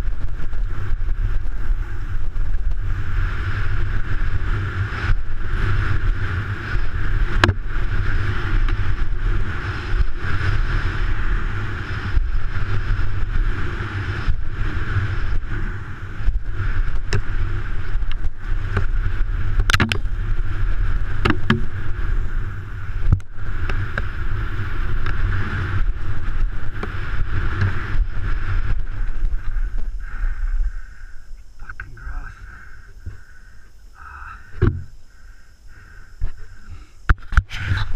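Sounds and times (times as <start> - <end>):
bike knocking and rattling: 0.0 - 29.7, 34.5 - 35.0
wind and tyre rush: 0.0 - 37.9.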